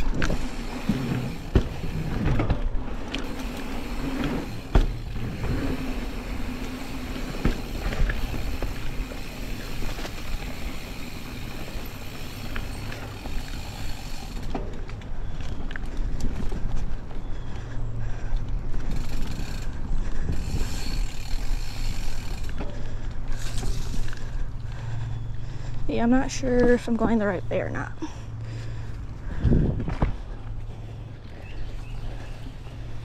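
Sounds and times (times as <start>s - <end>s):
bike rattling: 0.0s - 33.0s
bike tyres rolling on dirt: 0.0s - 33.0s
sharp knocks over bumps: 0.2s - 3.3s, 4.2s - 5.8s, 7.1s - 8.8s.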